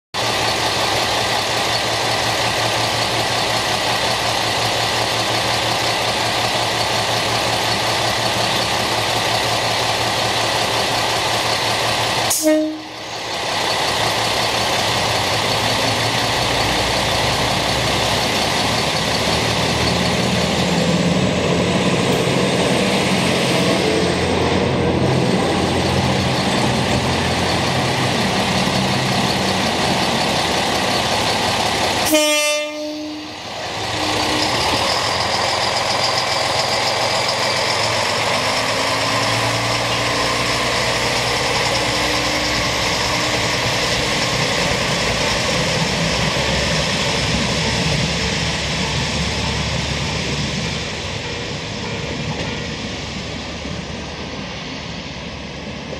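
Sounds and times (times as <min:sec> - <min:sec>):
diesel railcar engine drone: 0:00.2 - 0:55.9
diesel engine revving: 0:13.0 - 0:32.1, 0:33.3 - 0:51.1.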